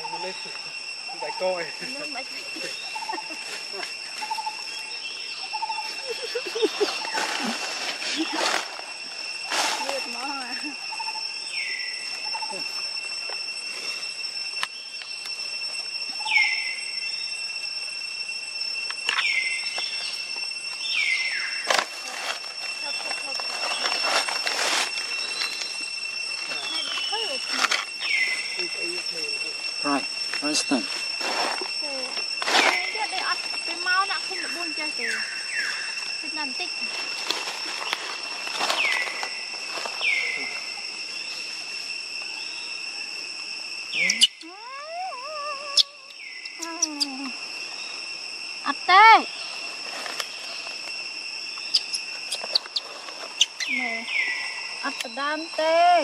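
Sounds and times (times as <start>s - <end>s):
high-pitched insect drone: 0.0s - 56.0s
swooping animal call: 43.9s - 48.0s.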